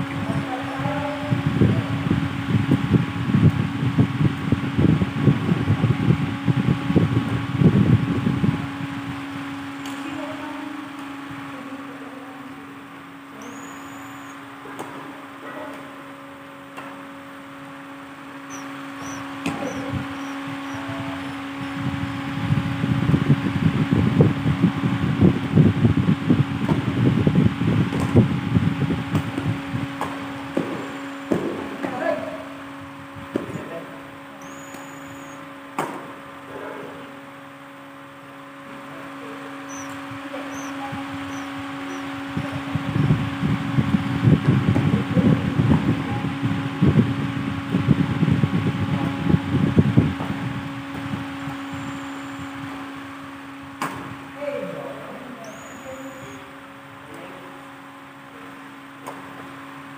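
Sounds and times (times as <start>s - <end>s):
rumbling rush of air: 0.0s - 9.7s, 19.0s - 31.8s
airflow buffeting microphone: 0.0s - 59.9s
fan humming: 0.0s - 59.9s
racket hitting shuttlecock: 35.8s - 36.1s, 53.8s - 54.1s.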